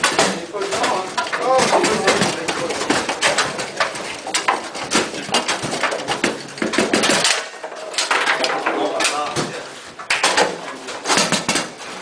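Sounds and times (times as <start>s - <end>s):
foosball clacks and knocks: 0.0s - 12.0s.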